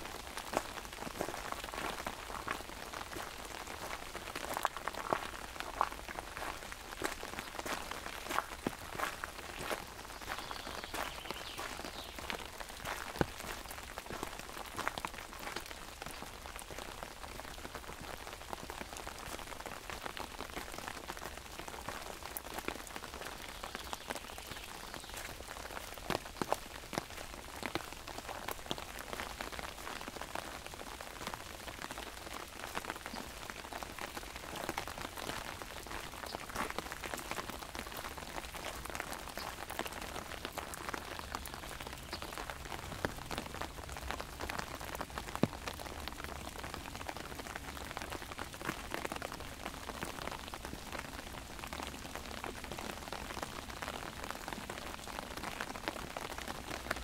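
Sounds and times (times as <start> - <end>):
rain pattering on umbrella: 0.0 - 57.0.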